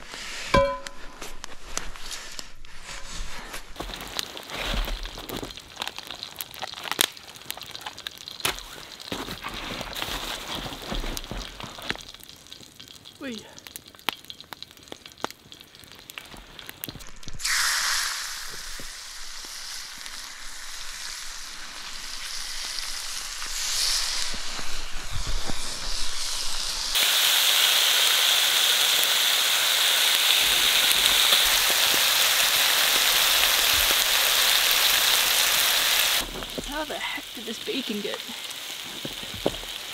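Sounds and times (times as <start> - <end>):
bacon sizzling in a skillet: 3.8 - 39.9.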